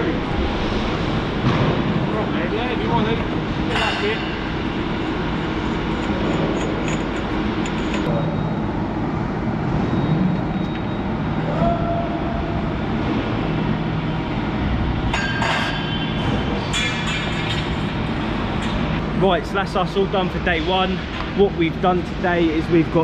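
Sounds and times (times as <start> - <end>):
industrial machinery rumble: 0.0 - 23.0
metallic clatter: 3.7 - 8.1, 15.1 - 19.1.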